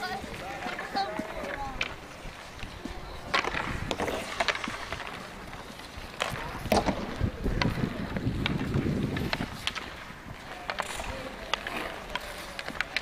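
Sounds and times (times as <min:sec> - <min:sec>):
hockey sticks clacking on puck: 0:00.0 - 0:13.0
skate blades scraping ice: 0:00.0 - 0:13.0
wind rumble on microphone: 0:06.0 - 0:10.4.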